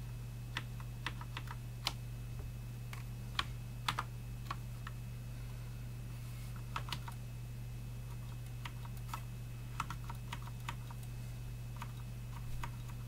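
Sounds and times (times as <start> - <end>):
mechanical keyboard clacks: 0.6 - 2.0, 6.7 - 7.2, 9.8 - 11.0.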